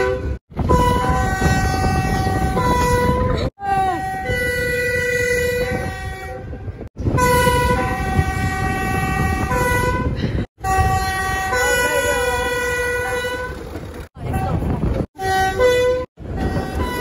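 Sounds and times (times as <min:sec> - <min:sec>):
moving train rumble: 0:00.0 - 0:17.0
two-tone train horn: 0:00.0 - 0:17.0.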